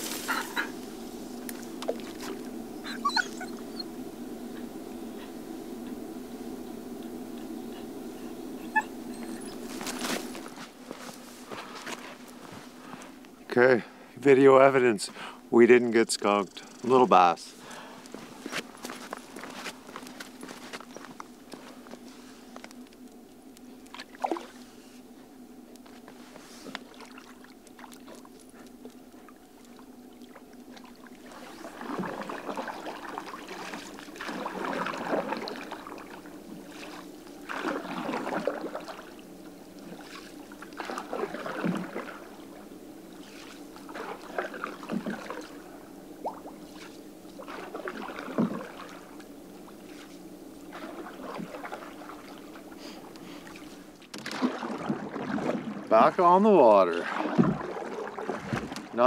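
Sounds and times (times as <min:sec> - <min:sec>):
canoe paddle splashing water: 0:01.5 - 0:03.0, 0:23.7 - 0:25.0, 0:26.2 - 0:59.0.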